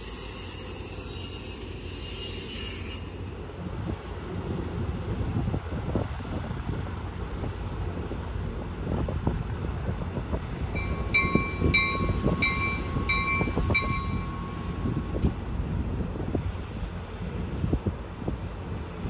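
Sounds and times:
train rolling with low rumble: 0.0s - 19.0s
bell ringing: 10.8s - 15.0s.

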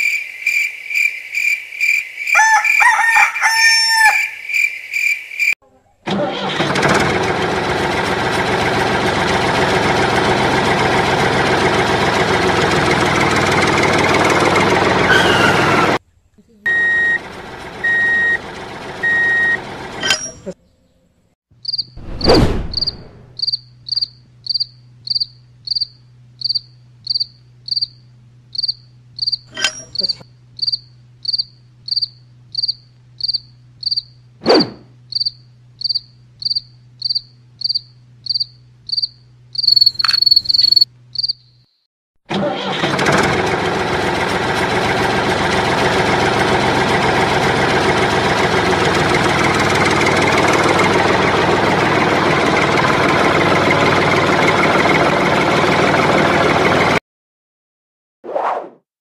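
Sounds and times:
cricket chirping: 0.0s - 2.8s, 4.2s - 5.6s, 21.6s - 22.0s, 22.7s - 34.2s, 35.1s - 41.8s
diesel tractor engine running: 6.1s - 16.0s, 16.7s - 20.6s, 22.7s - 41.3s, 42.3s - 57.0s
reversing beeper beeping: 16.7s - 18.4s, 19.0s - 19.6s
brief sharp noises: 22.0s - 23.4s.

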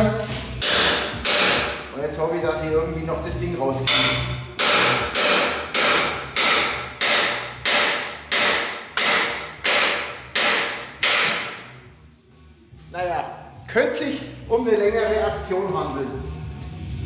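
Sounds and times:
hammer striking steel: 0.6s - 1.9s, 3.8s - 11.8s.

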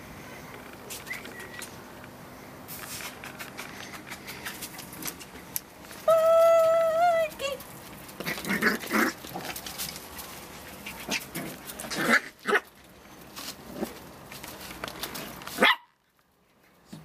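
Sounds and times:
puppies scuffling: 2.7s - 17.0s
puppies growling: 8.1s - 12.9s.

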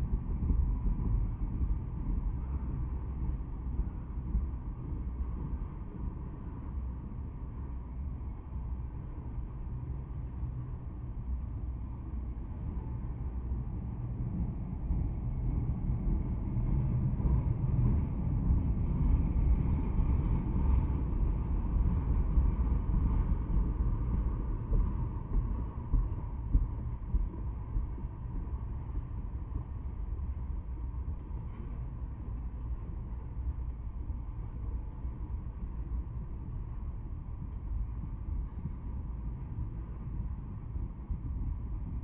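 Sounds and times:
train wheels rumbling on rails: 12.2s - 42.0s.

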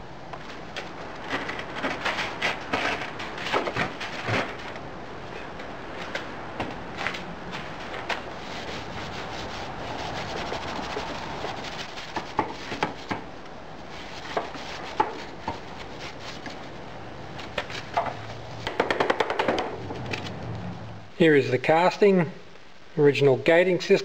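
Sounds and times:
clicks and knocks of sand and metal: 0.4s - 13.3s
gritty sand scraping rustle: 0.5s - 13.1s, 13.8s - 18.6s.

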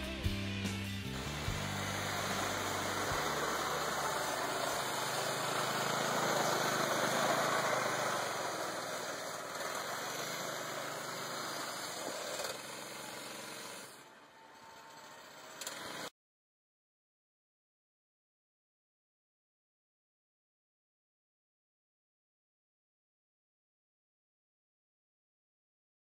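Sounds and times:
snowmobile engine running: 1.0s - 16.1s.

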